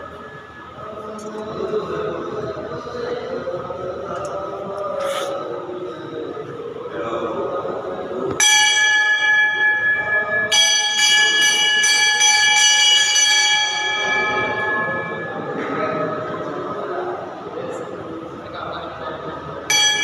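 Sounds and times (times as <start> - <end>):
temple bell ringing: 8.4 - 17.4, 19.6 - 20.0.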